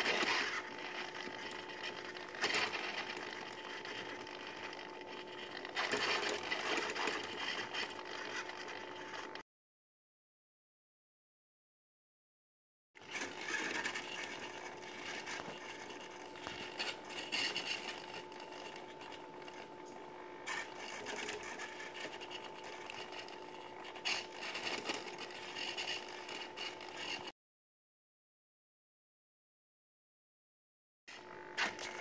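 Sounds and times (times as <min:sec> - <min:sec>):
servos whirring and buzzing: 0:00.0 - 0:09.4, 0:13.0 - 0:27.3.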